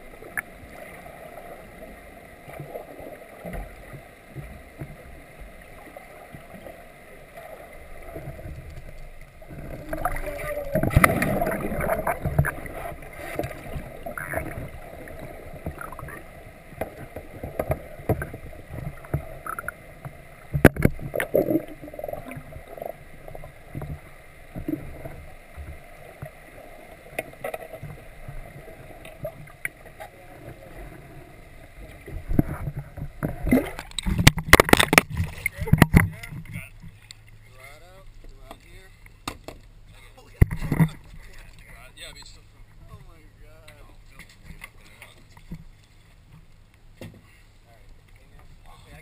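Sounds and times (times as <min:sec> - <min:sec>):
water sloshing and gurgling: 0:00.0 - 0:49.0.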